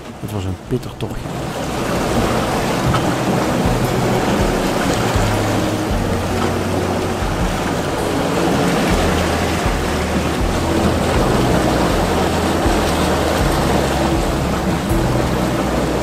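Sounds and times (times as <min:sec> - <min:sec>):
water rushing along hull: 0:00.0 - 0:16.0
wind buffeting microphone: 0:01.2 - 0:16.0.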